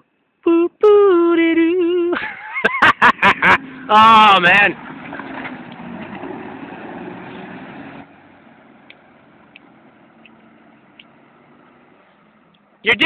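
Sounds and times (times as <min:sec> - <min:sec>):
vehicle engine running: 0:03.0 - 0:13.0
faint clicks: 0:08.8 - 0:11.2.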